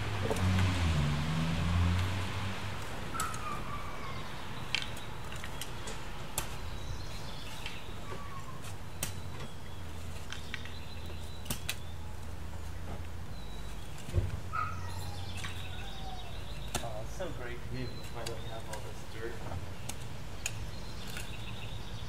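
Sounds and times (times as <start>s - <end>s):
bird chirping: 3.1s - 22.0s
shovels scraping loose soil: 4.7s - 12.4s, 16.5s - 21.6s.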